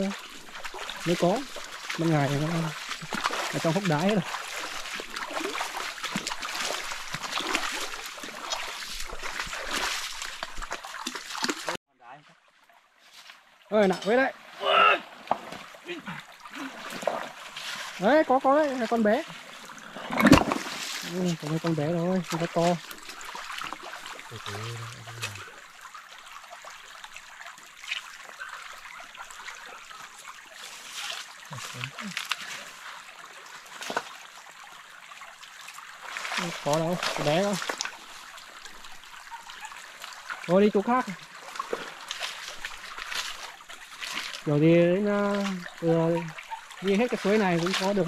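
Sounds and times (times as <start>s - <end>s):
stream trickling and splashing: 0.0s - 48.0s
stones knocking in water: 20.0s - 21.0s.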